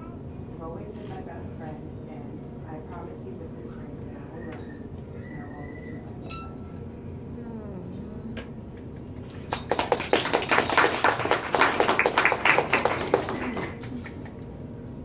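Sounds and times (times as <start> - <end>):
people applauding: 9.1 - 14.4.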